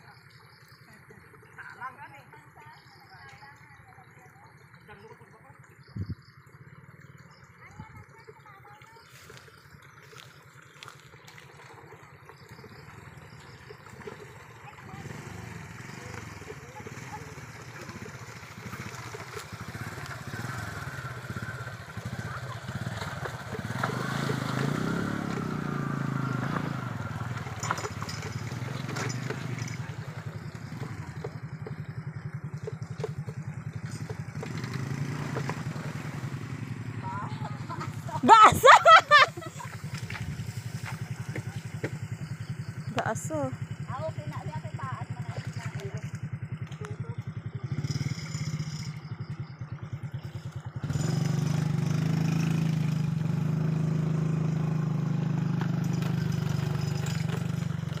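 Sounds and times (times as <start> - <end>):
small motorcycle engine putter: 12.2 - 25.6, 26.4 - 36.3, 39.5 - 52.7, 54.5 - 58.0.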